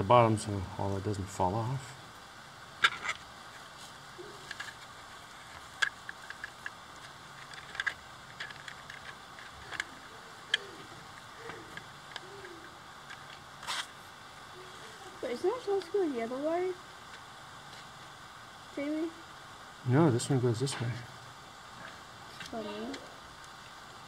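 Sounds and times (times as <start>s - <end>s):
plastic parts clicking and tapping: 5.4s - 9.9s.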